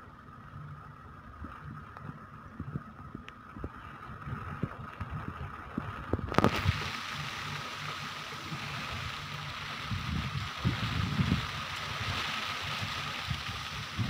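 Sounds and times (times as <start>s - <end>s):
wind on microphone: 2.6s - 7.6s, 8.4s - 14.0s.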